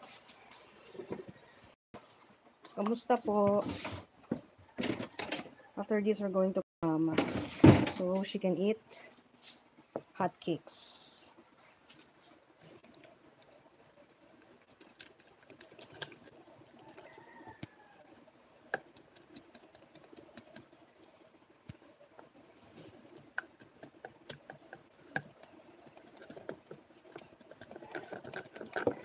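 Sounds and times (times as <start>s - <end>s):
soft wet stirring: 11.3s - 29.0s.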